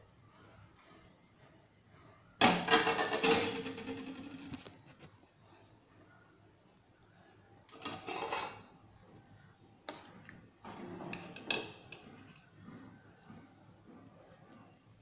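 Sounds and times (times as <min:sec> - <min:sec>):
boiling water: 0:06.6 - 0:15.0
skimmer scraping rustle: 0:07.8 - 0:08.7.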